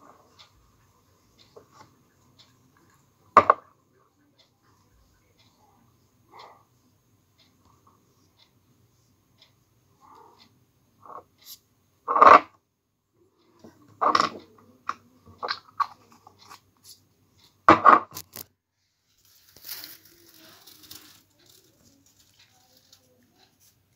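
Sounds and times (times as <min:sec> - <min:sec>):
soft rubbing hiss: 0:18.8 - 0:23.9
scratchy handling rustles: 0:19.2 - 0:23.8.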